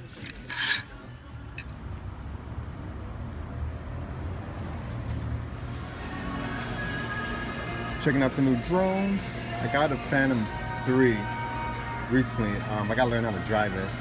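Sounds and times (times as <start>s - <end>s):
plastic hangers clacking: 0.0s - 0.9s
outdoor traffic rumble: 0.0s - 14.0s.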